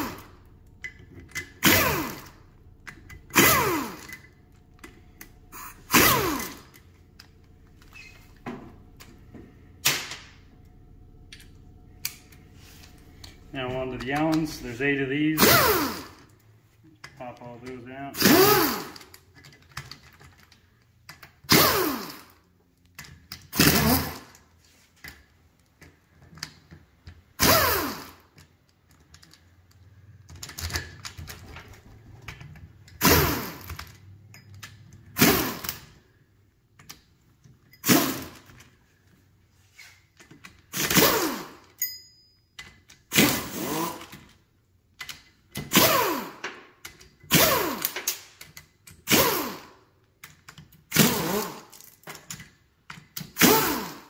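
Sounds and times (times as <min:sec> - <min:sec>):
pneumatic impact wrench bursts: 0:00.0 - 0:00.3, 0:01.4 - 0:02.4, 0:03.3 - 0:04.3, 0:05.5 - 0:06.8, 0:15.3 - 0:16.3, 0:18.1 - 0:19.2, 0:21.4 - 0:22.4, 0:23.4 - 0:24.4, 0:27.3 - 0:28.4, 0:33.0 - 0:33.8, 0:35.1 - 0:36.0, 0:37.8 - 0:38.5, 0:40.6 - 0:41.8, 0:43.0 - 0:44.2, 0:45.6 - 0:46.4, 0:47.2 - 0:49.8, 0:50.8 - 0:51.8, 0:53.2 - 0:54.0.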